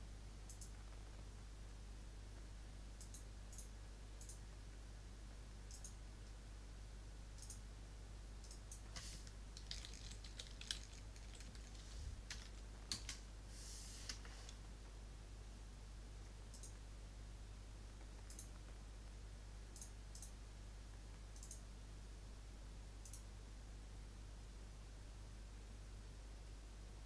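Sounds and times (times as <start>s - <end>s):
faint low hum: 0.0s - 27.0s
computer mouse clicks: 0.5s - 0.8s, 3.0s - 4.4s, 5.7s - 6.4s, 7.4s - 7.6s, 8.4s - 13.2s, 16.2s - 16.8s, 18.0s - 18.7s, 19.7s - 20.4s, 21.1s - 21.7s, 23.0s - 23.3s
keyboard keystrokes: 8.5s - 13.2s.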